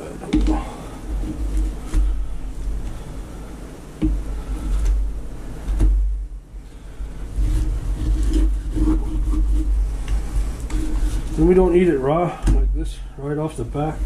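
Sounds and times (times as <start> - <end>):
steady low rumble: 0.0 - 14.0
soft knocks: 4.0 - 6.2.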